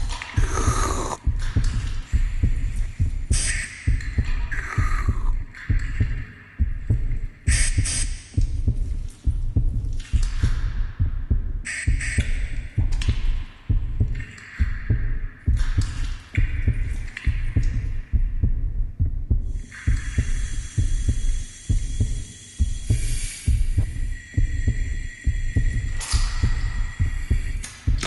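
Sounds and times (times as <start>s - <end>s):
eerie hissing swells: 0.0s - 1.2s, 19.6s - 27.9s
low heartbeat-like thumps: 0.0s - 28.0s
low throbbing pulse: 0.0s - 28.0s.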